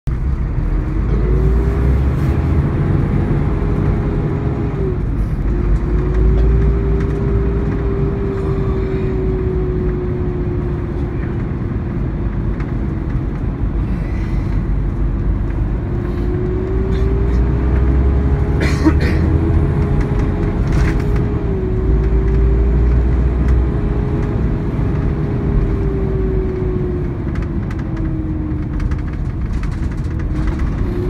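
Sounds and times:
diesel engine rumble: 0.1s - 31.0s
engine whine: 0.1s - 31.0s.

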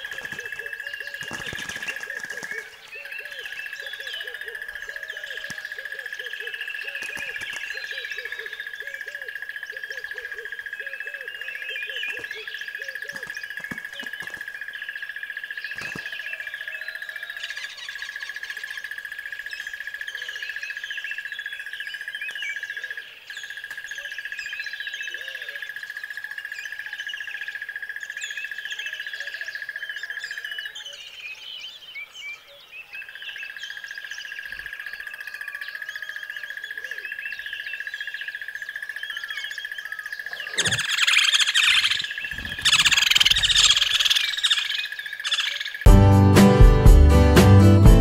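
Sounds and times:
birds chirping and calling: 0.0s - 45.9s
short lower bird calls: 40.2s - 45.9s.

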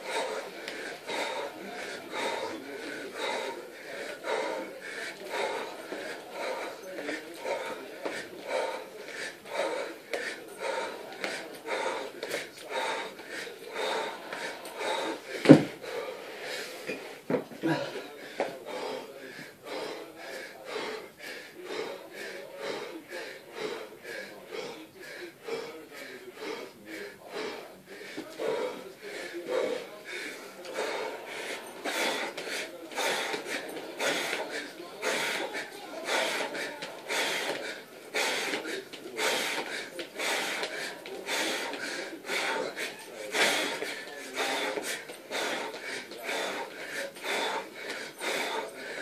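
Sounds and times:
man breathing hard: 0.0s - 49.0s.

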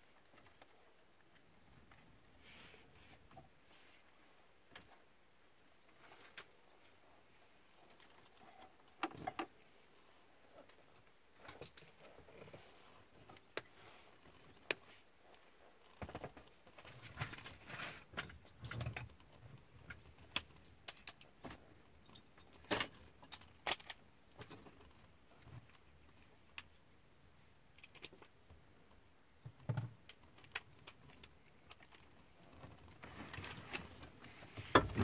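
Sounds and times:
plastic parts clicking and rattling: 15.9s - 26.8s, 27.7s - 28.4s, 29.4s - 35.0s.

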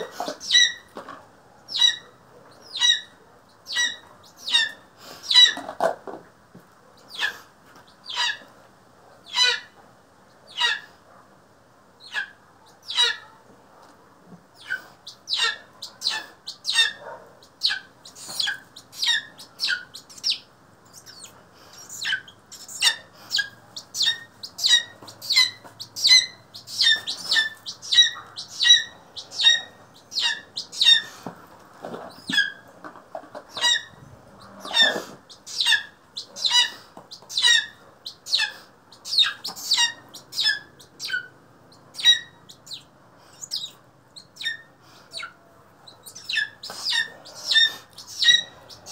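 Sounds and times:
eagle calling: 14.6s - 31.3s, 33.5s - 48.9s.

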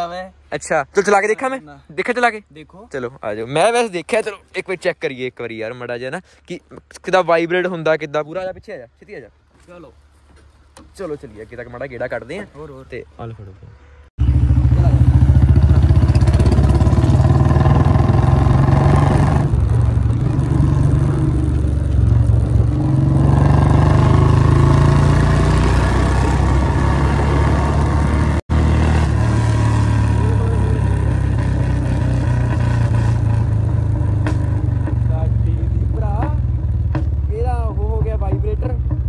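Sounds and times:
motorcycle engine running: 14.2s - 39.0s.

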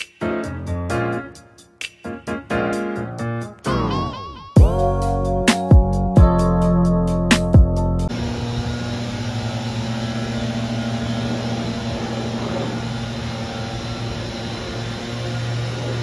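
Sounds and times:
aircraft passing overhead: 8.0s - 16.0s.

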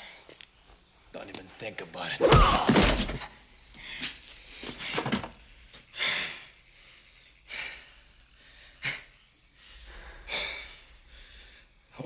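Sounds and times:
man breathing hard: 3.7s - 11.9s.

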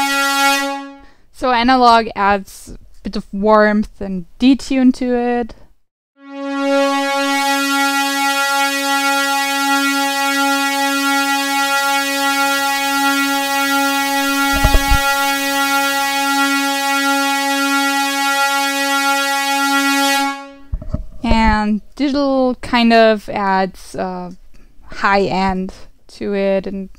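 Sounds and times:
bright hissy synthesizer note: 11.0s - 17.0s.

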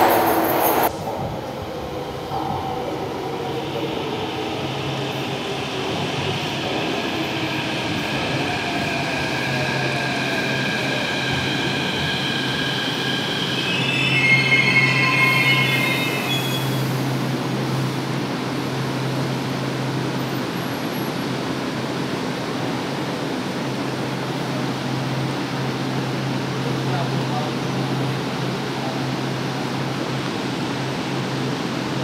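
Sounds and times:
train wheels squealing: 7.3s - 17.2s.

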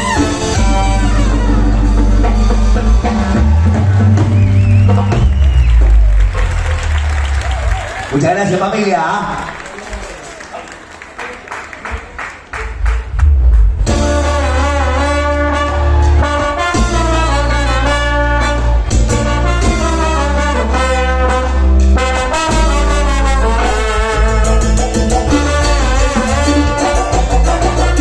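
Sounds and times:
trumpet and trombone melody: 0.0s - 4.0s, 13.9s - 28.0s
bass: 0.0s - 9.6s, 12.5s - 28.0s
percussion hits: 12.5s - 14.7s, 22.1s - 28.0s.

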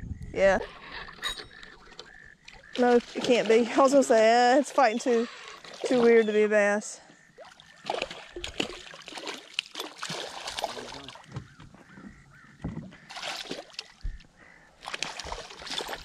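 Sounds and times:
fish splashing in water: 2.1s - 6.4s, 7.3s - 11.3s, 13.0s - 16.0s.

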